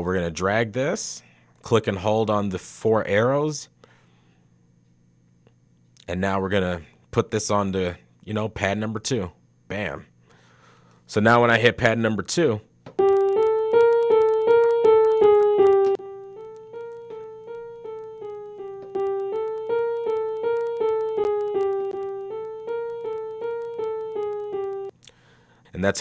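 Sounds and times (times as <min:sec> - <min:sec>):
piano repeated notes loop: 0:13.0 - 0:25.0.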